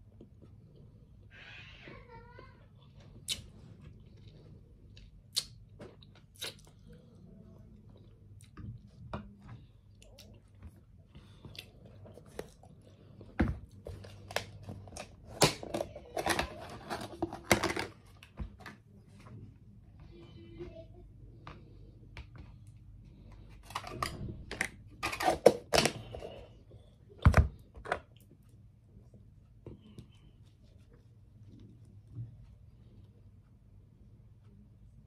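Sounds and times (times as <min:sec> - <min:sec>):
chewing and crunching: 0:03.1 - 0:17.5.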